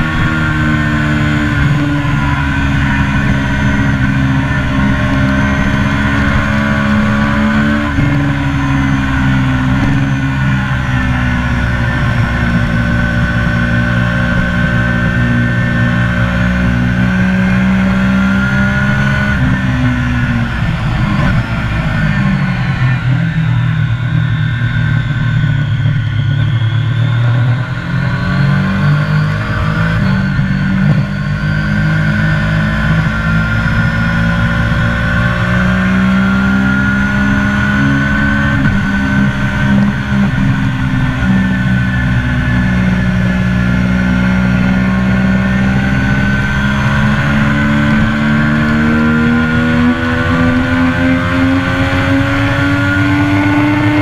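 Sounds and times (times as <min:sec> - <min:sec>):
motorcycle engine at high revs: 0:00.0 - 0:54.0.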